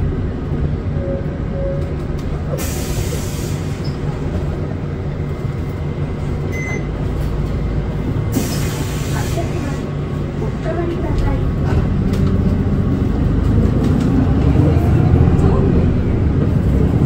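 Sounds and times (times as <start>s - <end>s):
bus drivetrain drone: 0.0s - 17.0s
hiss: 2.6s - 3.8s, 8.3s - 9.6s.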